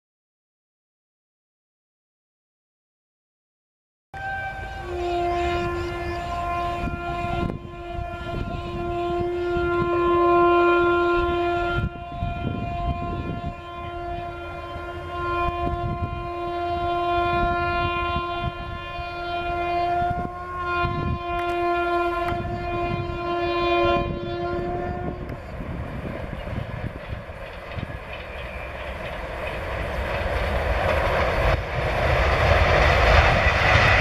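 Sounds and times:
electric locomotive horn blasts: 0:04.2 - 0:27.2
train rumbling along track: 0:04.2 - 0:34.0.

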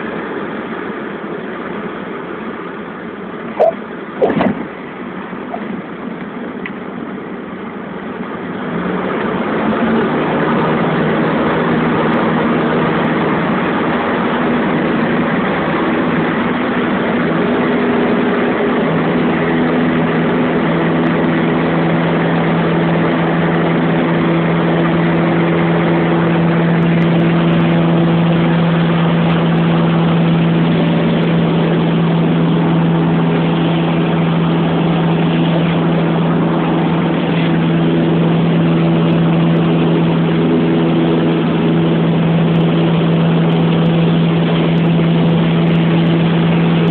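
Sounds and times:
light aircraft engine drone: 0:00.0 - 0:46.9.

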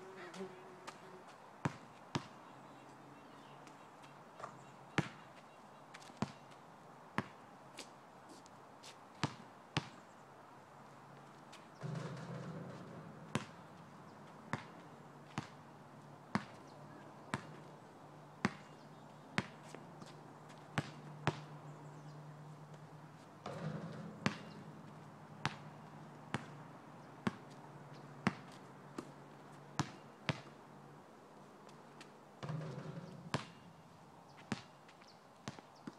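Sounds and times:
basketball bouncing on asphalt: 0:01.6 - 0:02.5, 0:04.0 - 0:05.3, 0:06.0 - 0:06.6, 0:07.2 - 0:07.4, 0:09.2 - 0:10.0, 0:11.8 - 0:15.7, 0:16.3 - 0:16.6, 0:17.3 - 0:17.7, 0:18.4 - 0:21.7, 0:23.4 - 0:30.6, 0:32.0 - 0:35.9.

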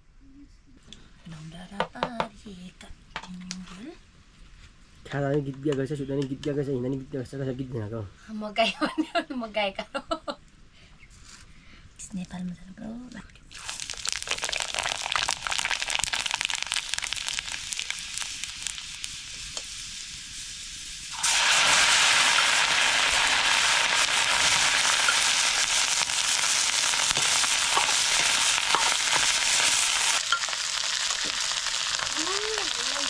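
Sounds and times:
food sizzling in hot oil: 0:13.5 - 0:33.0.

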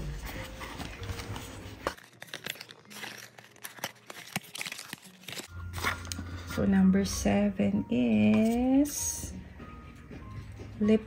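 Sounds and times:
cardboard and paper rustling: 0:00.0 - 0:06.3.

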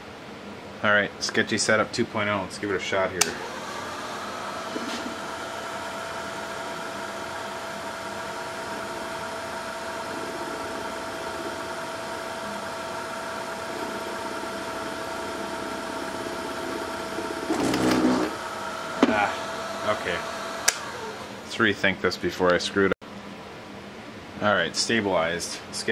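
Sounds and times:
drilling machine motor whine: 0:03.2 - 0:21.5.

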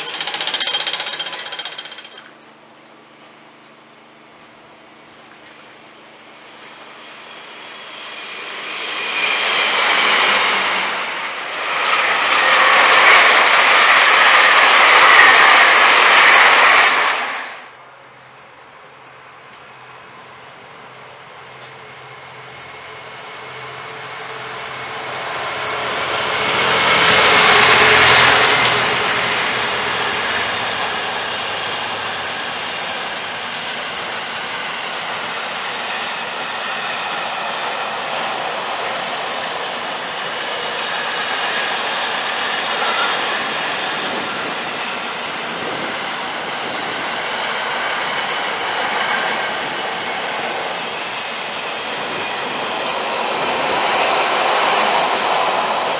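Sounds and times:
freight wagons rolling on rails: 0:00.0 - 0:02.4
diesel locomotive engine passing: 0:05.7 - 0:55.9.

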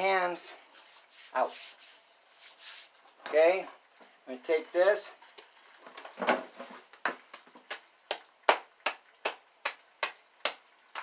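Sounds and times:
hands rubbing dough: 0:00.7 - 0:03.2
hands patting dough: 0:06.9 - 0:11.0.

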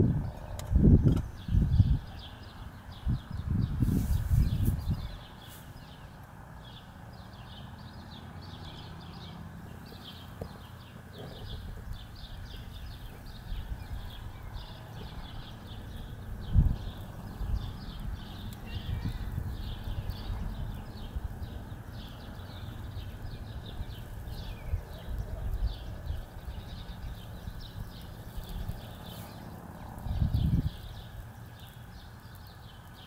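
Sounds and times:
steady low rumble: 0:09.6 - 0:31.5.

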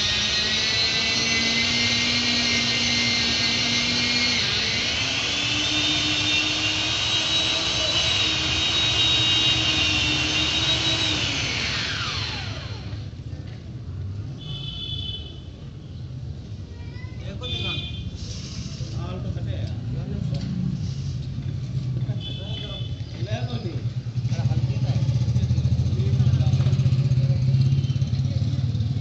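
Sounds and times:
chainsaw engine revving: 0:00.0 - 0:13.1.

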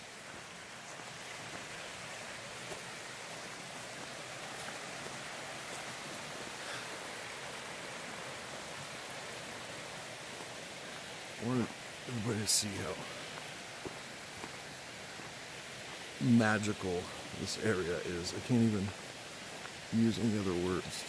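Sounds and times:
creek water rushing: 0:00.0 - 0:21.0.

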